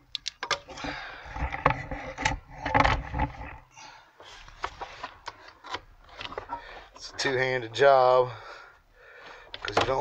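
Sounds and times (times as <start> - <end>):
rumbling handling noise: 0.4 - 7.6.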